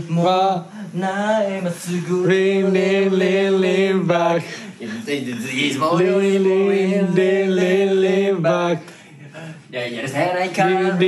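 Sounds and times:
man singing unaccompanied: 0:00.0 - 0:09.0, 0:09.8 - 0:11.0.

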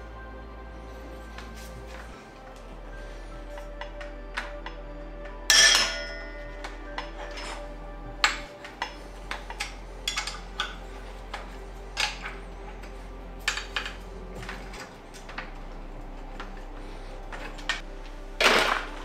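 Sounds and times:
metal tools clinking: 0:05.5 - 0:15.5.

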